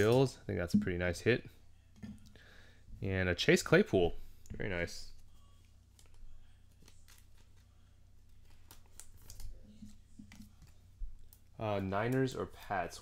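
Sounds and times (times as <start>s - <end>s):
low steady hum: 0.0s - 8.8s
cards clicking and rustling: 5.9s - 12.4s.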